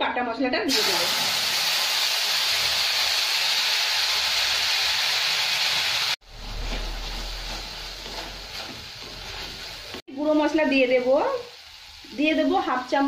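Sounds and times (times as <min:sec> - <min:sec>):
spice paste sizzling in hot oil: 0:00.7 - 0:13.0
softer sizzling while stirring: 0:04.0 - 0:13.0.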